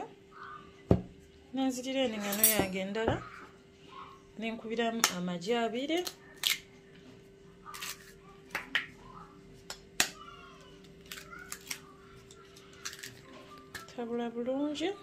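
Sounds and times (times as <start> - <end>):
eggshells cracking on fork: 6.0 - 6.7, 10.8 - 14.0.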